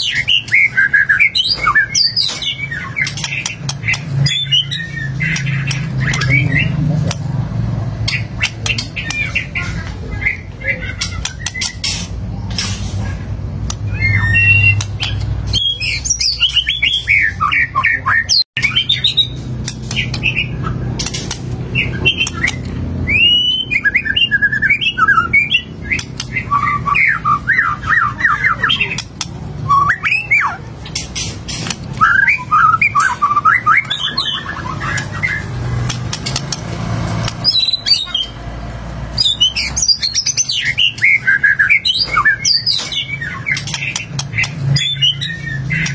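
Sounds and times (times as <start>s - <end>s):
songbird singing whistles and trills: 13.9s - 20.7s, 21.8s - 31.0s, 31.6s - 35.5s, 39.2s - 45.9s.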